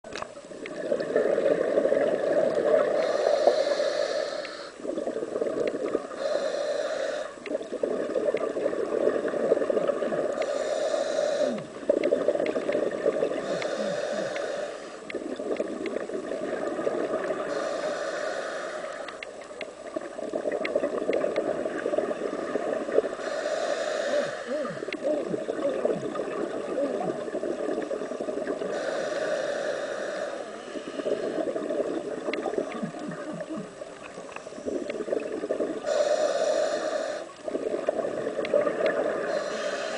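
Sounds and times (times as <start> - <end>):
bubbling exhales underwater: 0.7 - 3.0, 24.5 - 28.7, 31.0 - 36.0
regulator hissing inhale: 2.8 - 4.9, 6.1 - 7.6, 10.3 - 11.9, 13.4 - 15.1, 17.4 - 19.4, 23.2 - 25.0, 28.6 - 31.7, 35.8 - 37.5, 38.7 - 39.9.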